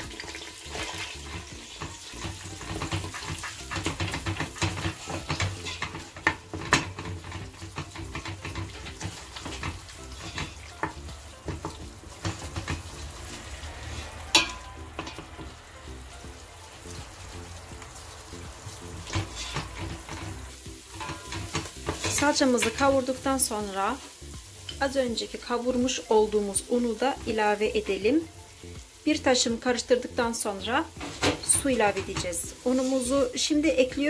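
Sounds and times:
wooden spoon scraping a pot: 0.0 - 15.4, 19.0 - 23.1, 31.0 - 33.3
paste sizzling in oil: 0.0 - 34.0.

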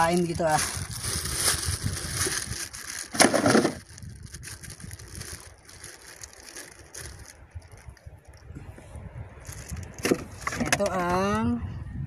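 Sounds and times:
plastic bag crinkling: 0.0 - 8.2, 9.4 - 10.0.

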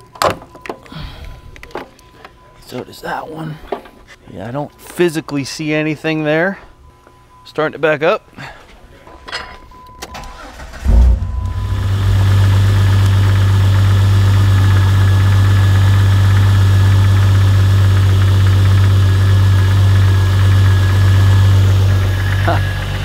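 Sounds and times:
car engine starting and idling: 10.0 - 23.0.

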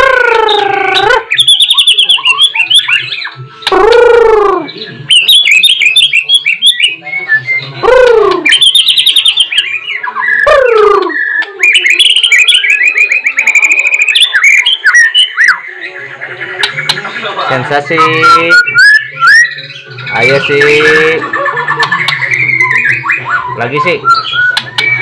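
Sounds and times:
bird singing: 0.0 - 25.0.

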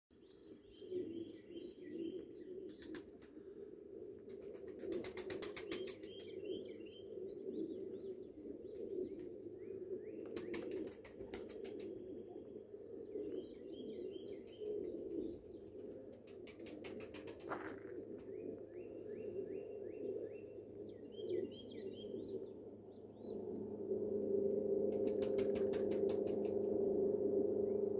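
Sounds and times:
small birds chirping: 4.1 - 23.3.

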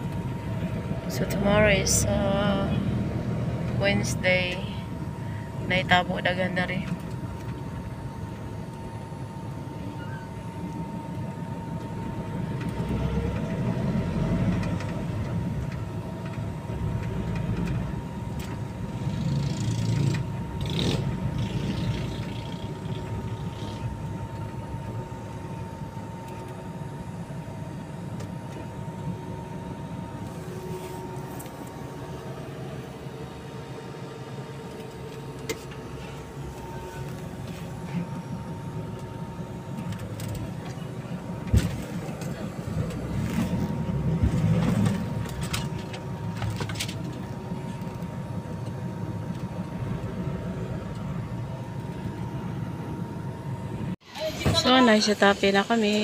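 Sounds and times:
faint steady whine: 0.0 - 56.0
van engine and road rumble: 0.0 - 56.0.

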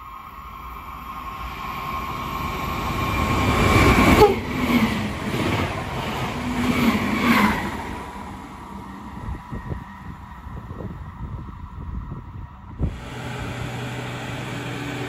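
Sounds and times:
electric train passing at speed: 0.0 - 15.0
wheel-on-rail rumble: 12.8 - 15.0.

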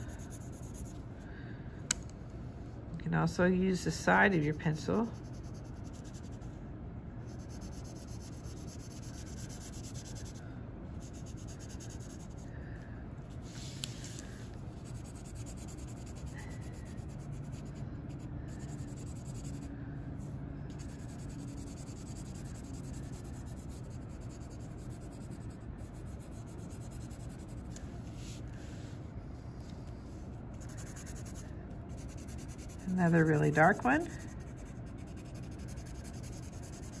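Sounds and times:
pencil shading on paper: 0.0 - 1.0, 7.3 - 10.4, 11.0 - 12.4, 14.8 - 19.7, 20.7 - 27.7, 30.6 - 37.0.

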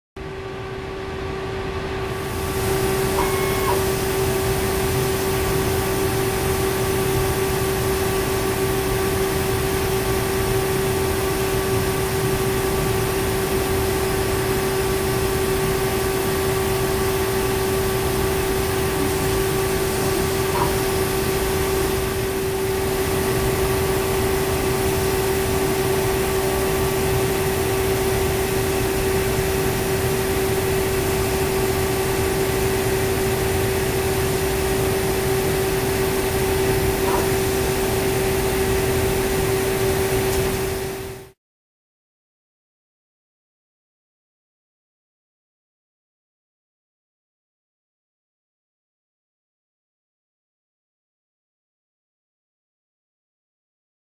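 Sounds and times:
laser cutter droning: 0.4 - 41.3.

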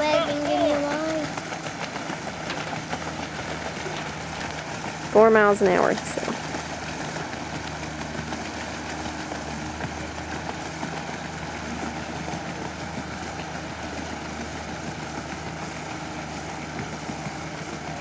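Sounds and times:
outboard motor running: 0.0 - 18.0.

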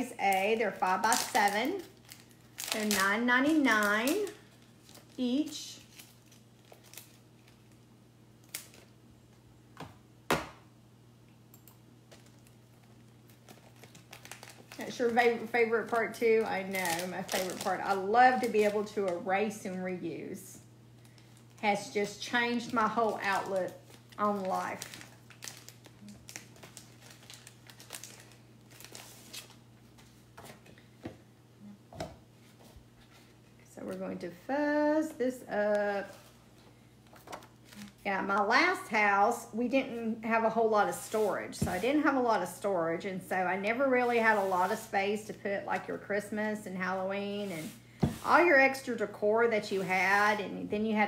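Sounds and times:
plastic sheets rustling: 0.0 - 7.9, 12.1 - 19.8, 21.0 - 30.8, 35.7 - 38.0, 40.9 - 42.2, 43.8 - 44.9, 47.3 - 48.8
low steady room hum: 0.0 - 51.0.

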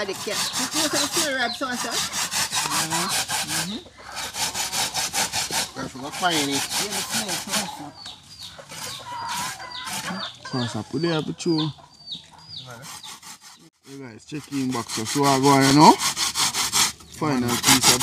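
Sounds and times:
coconut rasping on hand grater: 0.0 - 7.8, 14.3 - 18.0.

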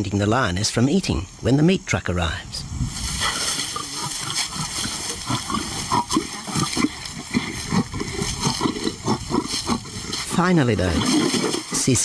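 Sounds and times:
lions growling: 3.1 - 12.0.

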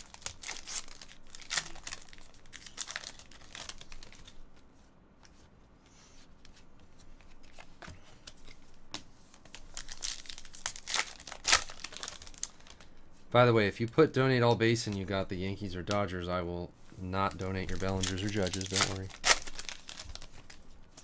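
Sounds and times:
foil wrapper tearing and crinkling: 0.0 - 4.3, 9.7 - 12.9, 17.4 - 21.0
card handling: 17.2 - 21.0.

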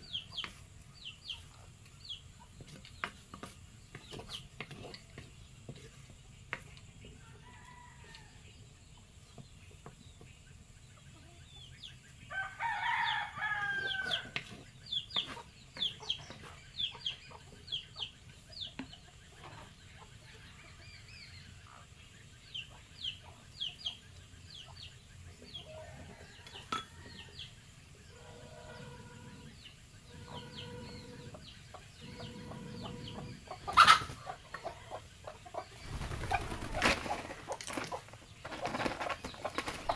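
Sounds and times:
small birds chirping: 0.0 - 39.9
rooster crowing: 12.3 - 14.4.

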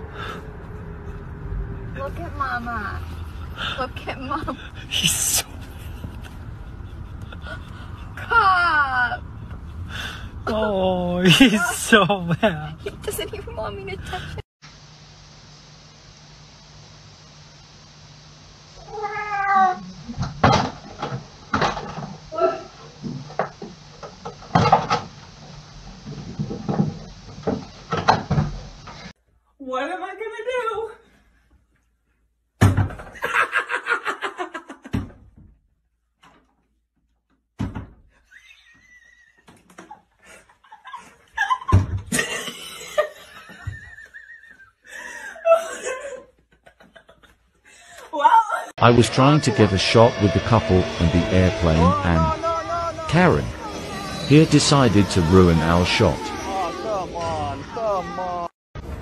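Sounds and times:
cat meowing: 18.8 - 19.9
people laughing: 33.2 - 34.9, 39.8 - 47.4, 48.8 - 58.5
high-pitched laugh: 38.3 - 47.4.

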